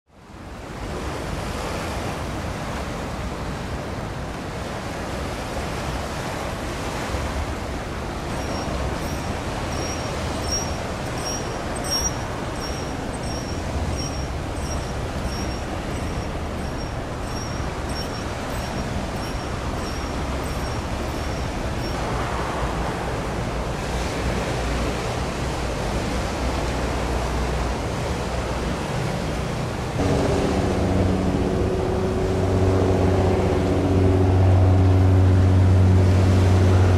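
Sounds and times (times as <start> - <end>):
rushing noise by open water: 0.1 - 36.9
short high chirp: 8.4 - 21.5
low hum with pitched tones: 30.0 - 36.7.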